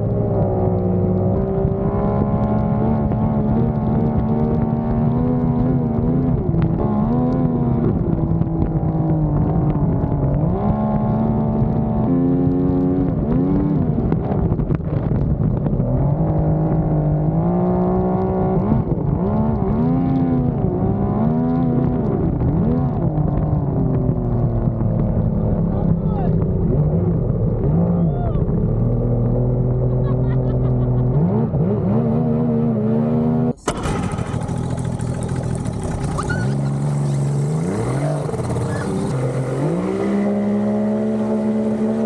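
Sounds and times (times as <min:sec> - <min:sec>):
outboard boat engine revving: 0:24.0 - 0:42.0.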